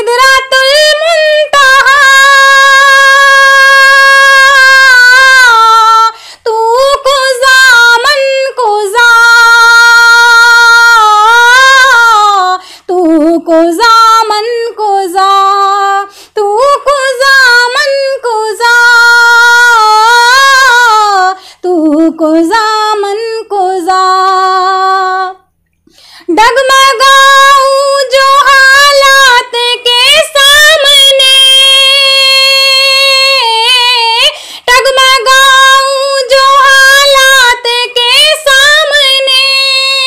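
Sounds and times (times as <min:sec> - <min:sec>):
woman singing solo: 0:26.2 - 0:40.0.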